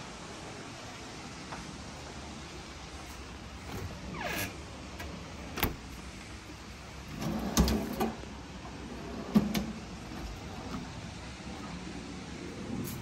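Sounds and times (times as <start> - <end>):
drawer sliding out: 3.6 - 5.9, 7.0 - 11.8.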